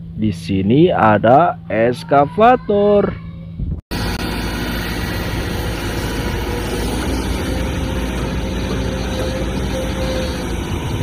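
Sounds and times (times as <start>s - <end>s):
excavator diesel engine running: 3.9s - 11.0s.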